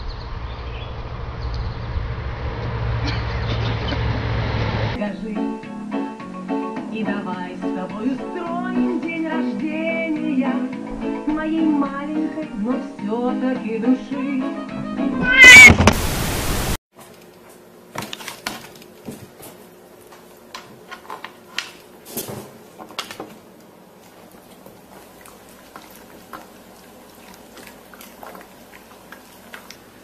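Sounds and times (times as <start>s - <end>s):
cat yowling: 15.2s - 15.8s.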